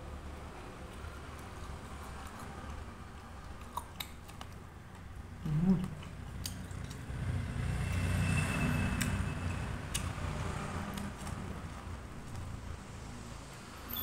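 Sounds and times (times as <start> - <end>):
man chewing crisp snack: 0.7 - 7.2.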